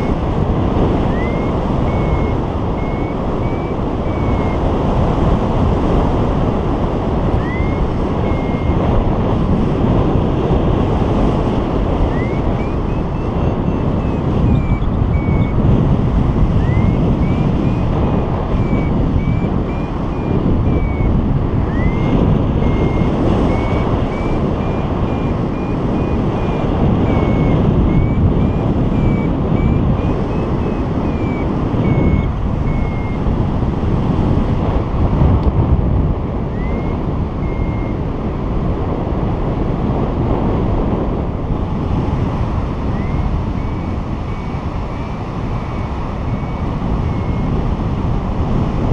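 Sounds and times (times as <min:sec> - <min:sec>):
variometer short high beeps: 0:00.0 - 0:05.4, 0:07.2 - 0:09.1, 0:11.1 - 0:33.4, 0:36.3 - 0:38.0, 0:42.0 - 0:47.6
wind rushing over microphone: 0:00.0 - 0:48.9.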